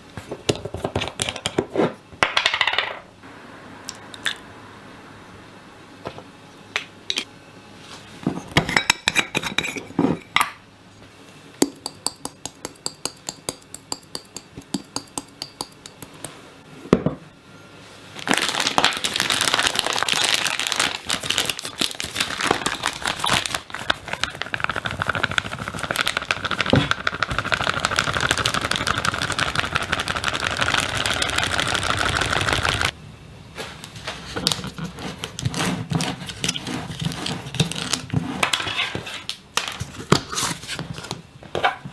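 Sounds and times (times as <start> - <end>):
plastic bag crinkling: 18.2 - 32.9.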